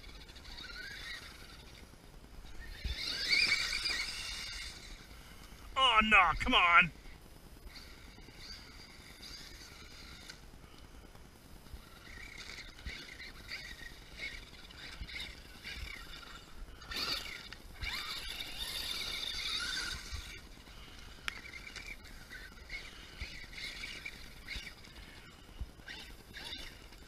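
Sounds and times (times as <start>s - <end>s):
electric motor whining: 2.4s - 5.5s.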